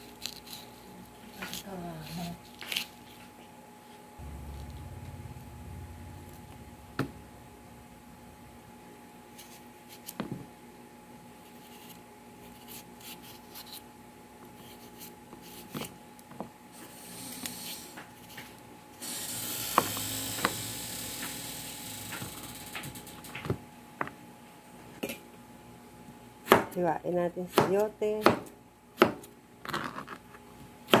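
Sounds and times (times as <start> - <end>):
knife scraping vegetable skin: 0.0 - 3.0, 11.5 - 13.8.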